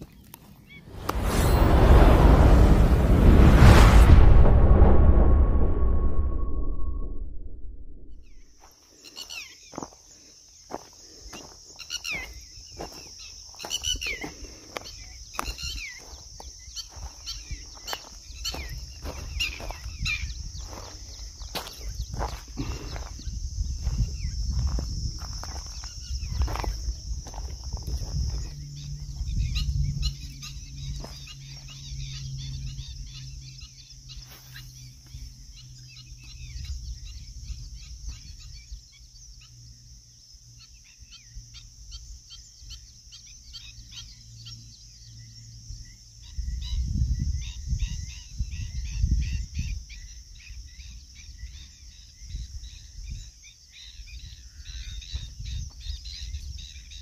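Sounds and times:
small birds chirping: 0:00.0 - 0:01.1, 0:08.2 - 0:57.0
wind gusting on microphone: 0:00.8 - 0:08.6, 0:17.3 - 0:31.2, 0:46.4 - 0:49.9
high insect hiss: 0:08.3 - 0:57.0.

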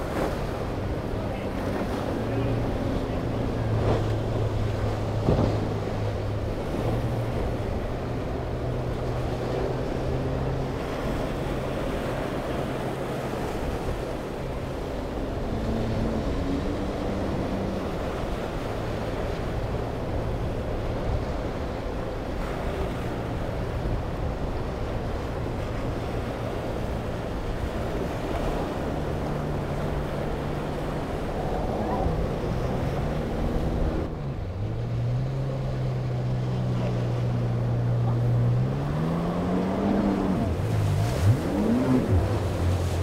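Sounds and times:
breaking surf: 0:00.0 - 0:34.9, 0:35.7 - 0:43.0
outboard motor droning: 0:00.0 - 0:43.0.

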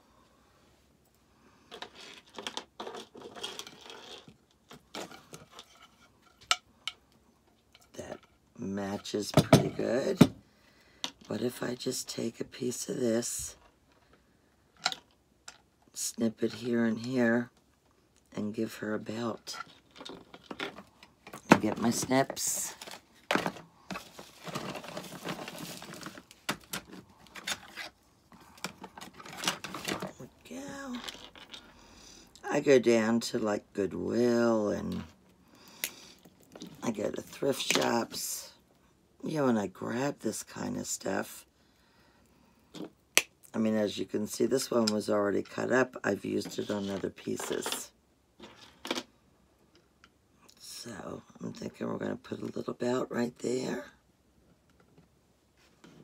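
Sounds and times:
rustling: 0:18.8 - 0:31.8.

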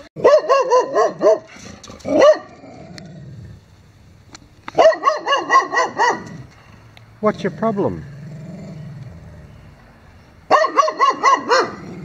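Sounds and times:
dog barking: 0:00.2 - 0:01.5, 0:02.1 - 0:02.5, 0:04.8 - 0:06.3, 0:10.5 - 0:11.8.

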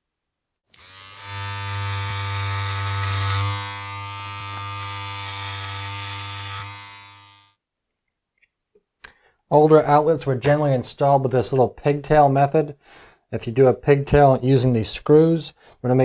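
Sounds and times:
electric hair clippers buzzing: 0:00.7 - 0:07.6.

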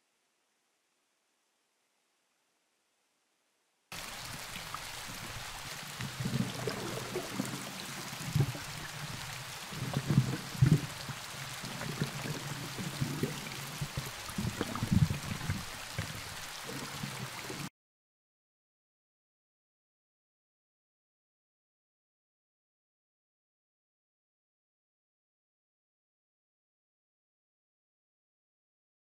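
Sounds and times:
flowing water gurgling: 0:03.9 - 0:17.7.

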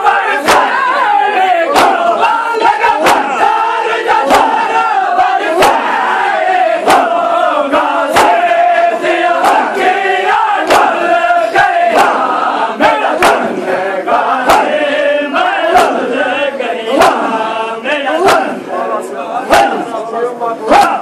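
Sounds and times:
men chanting in unison: 0:00.0 - 0:21.0
chest slaps: 0:00.4 - 0:00.8, 0:01.7 - 0:02.1, 0:03.0 - 0:03.5, 0:04.2 - 0:04.7, 0:05.5 - 0:05.9, 0:06.8 - 0:07.2, 0:08.1 - 0:08.4, 0:10.6 - 0:10.9, 0:11.9 - 0:12.2, 0:13.2 - 0:13.5.

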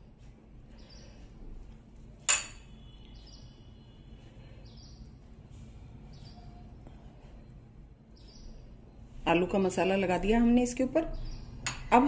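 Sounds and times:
low background hum: 0:00.0 - 0:12.0
birds chirping: 0:00.7 - 0:01.3, 0:02.8 - 0:05.3, 0:08.1 - 0:09.9, 0:11.0 - 0:12.0.

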